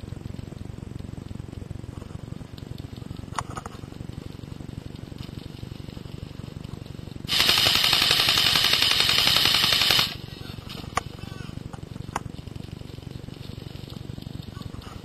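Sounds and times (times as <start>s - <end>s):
airsoft gun full-auto burst: 7.3s - 11.0s
sharp clicks: 7.3s - 11.1s.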